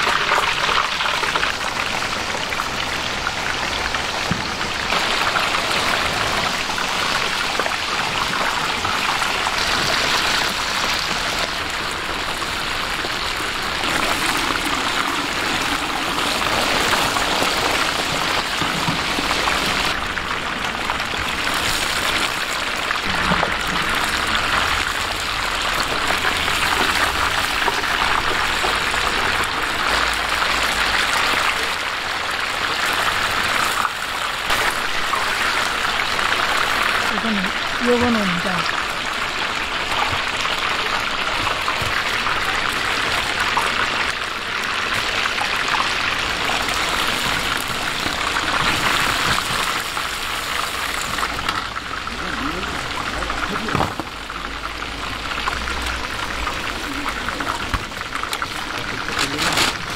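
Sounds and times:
chicken deep-frying in oil: 0.0s - 59.9s.

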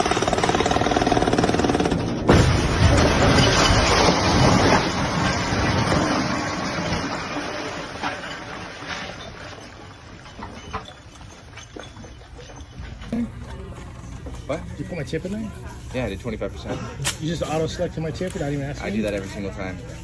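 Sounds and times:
hydraulic breaker hammering concrete: 0.0s - 8.1s
loud crash of collapsing deck: 2.1s - 12.4s
falling debris knocks: 2.3s - 12.4s.

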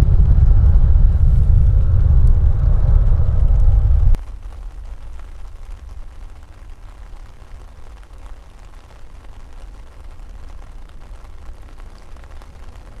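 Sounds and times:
jet airliner taking off: 0.0s - 4.2s.

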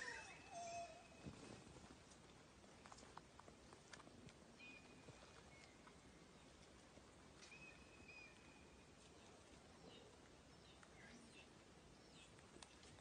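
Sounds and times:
thin high whistled calls: 0.0s - 1.2s, 7.4s - 8.8s.

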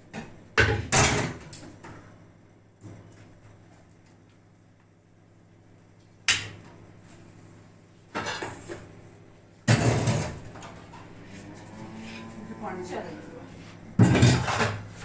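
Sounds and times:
metal plates and pans clattering: 14.0s - 14.9s.

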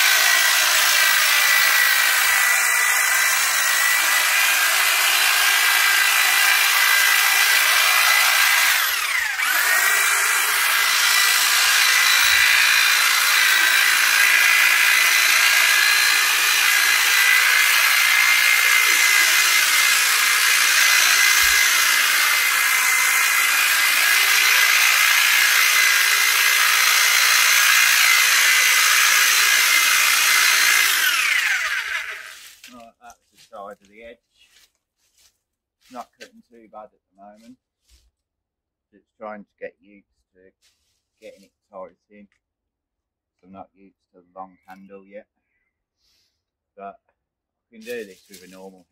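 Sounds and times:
electric hedge trimmer whining: 0.0s - 32.7s.

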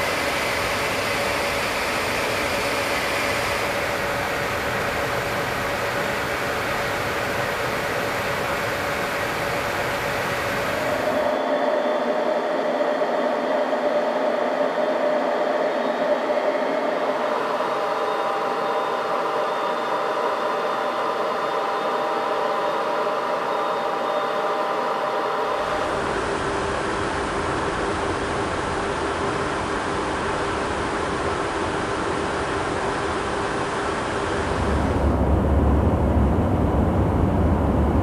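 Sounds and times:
jet aircraft cabin noise: 0.0s - 11.3s, 25.6s - 38.0s
thin rushing with whining tones: 31.7s - 38.0s.

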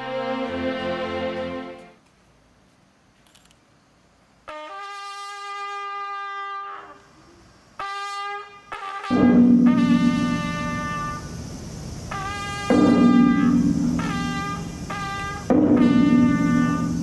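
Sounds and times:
bugle call: 4.5s - 7.1s, 7.8s - 11.5s, 12.1s - 17.0s.

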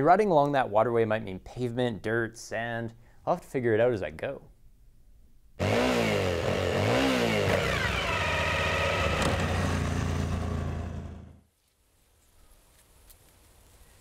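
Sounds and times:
motorcycle engine revving: 5.6s - 11.4s.

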